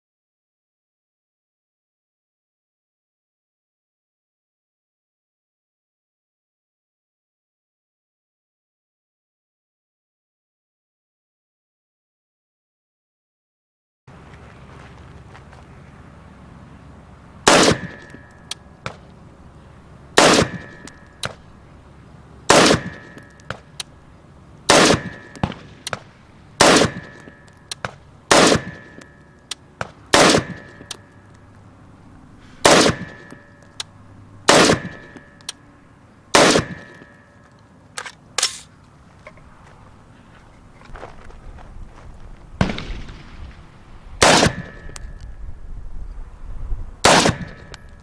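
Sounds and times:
rifle shots: 0:17.4 - 0:19.0, 0:20.2 - 0:21.5, 0:22.5 - 0:23.9, 0:24.7 - 0:29.2, 0:29.8 - 0:31.1, 0:32.6 - 0:33.5, 0:34.5 - 0:35.4, 0:36.3 - 0:37.1, 0:38.0 - 0:38.7, 0:42.6 - 0:45.0, 0:47.0 - 0:47.8.

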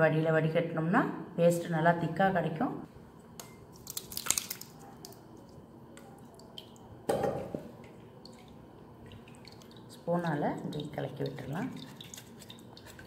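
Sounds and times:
wet pulp squishing and dripping: 0:03.4 - 0:07.1, 0:07.8 - 0:13.0.

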